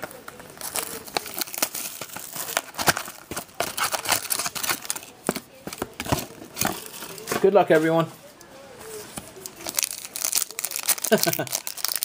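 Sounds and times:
plastic shrink wrap crinkling: 0.0 - 8.1, 9.0 - 12.0
cardboard box rustling: 0.6 - 8.1.

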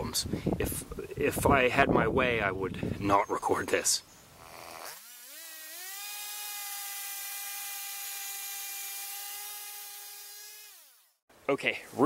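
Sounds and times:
chainsaw cutting a log: 4.4 - 11.2.

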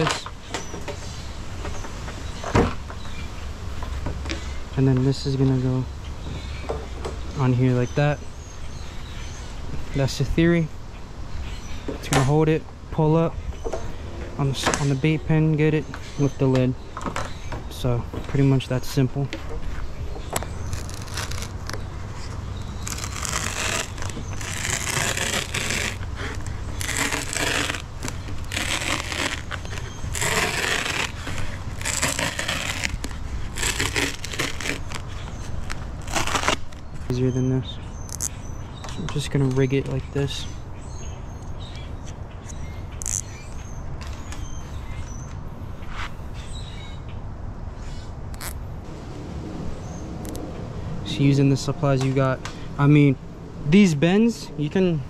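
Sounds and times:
small birds chirping: 0.0 - 48.6
plastic zip tie rasp: 20.6 - 36.9, 43.0 - 43.3, 48.3 - 48.6
knife cutting foam: 22.8 - 35.0.

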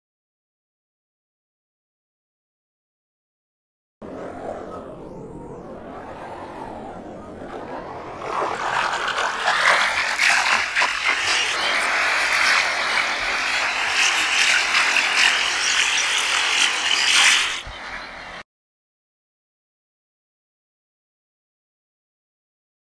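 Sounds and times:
electronic crackling hiss: 10.0 - 17.7.

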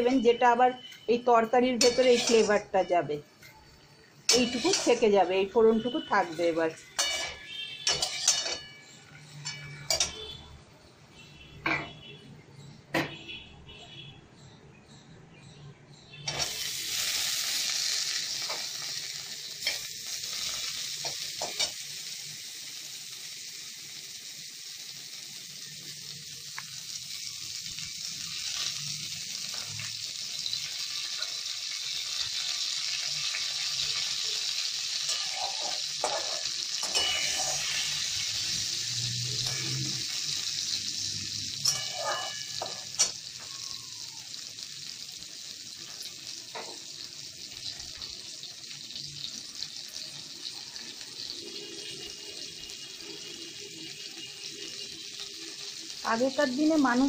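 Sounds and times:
vegetables frying in oil: 0.0 - 12.1, 16.2 - 57.0
spatula scraping pan: 1.8 - 2.7, 4.3 - 5.1, 7.0 - 10.3, 34.9 - 38.3, 41.6 - 43.1.

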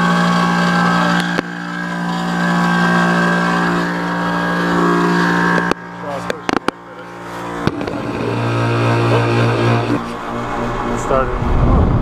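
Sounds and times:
air conditioner compressor humming: 0.0 - 12.0
clicks: 5.5 - 6.8.

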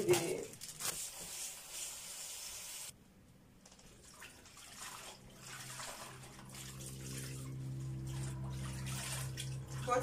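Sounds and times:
leaves splashing in water: 4.2 - 10.0.

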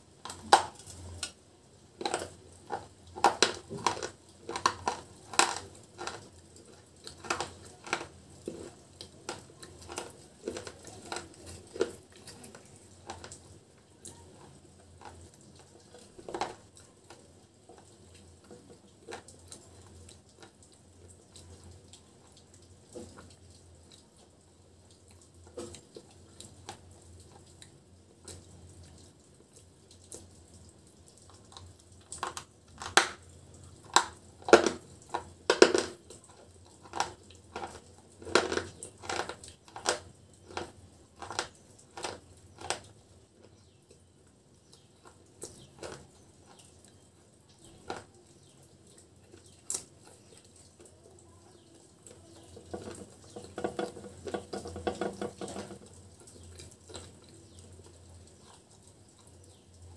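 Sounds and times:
soft crackling in pot of powder: 0.0 - 59.9
crunchy chip being chewed: 2.0 - 22.4, 31.2 - 44.0, 44.7 - 50.9.

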